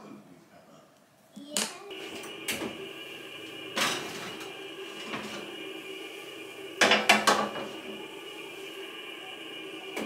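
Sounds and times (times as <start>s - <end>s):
steady hum: 1.9s - 10.0s.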